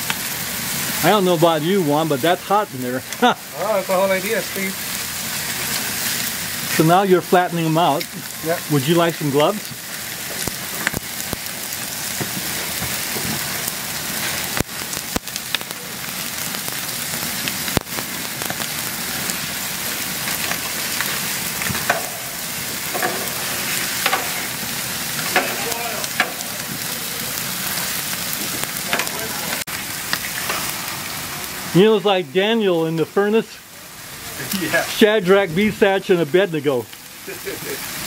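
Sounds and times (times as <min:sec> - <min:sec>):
steaks sizzling and spitting: 0:00.0 - 0:38.0.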